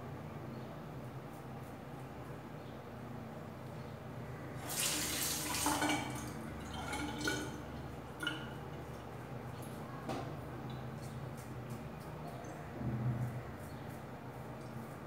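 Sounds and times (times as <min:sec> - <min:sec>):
water splashing: 0:04.6 - 0:08.7
tap water rushing: 0:04.6 - 0:09.1.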